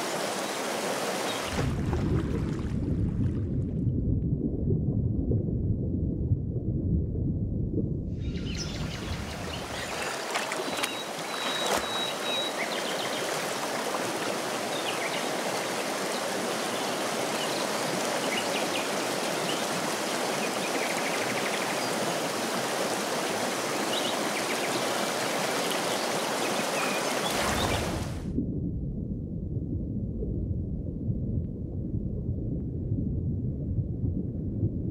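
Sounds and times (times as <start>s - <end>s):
river floodwater rushing: 0.0s - 1.6s, 9.1s - 28.1s.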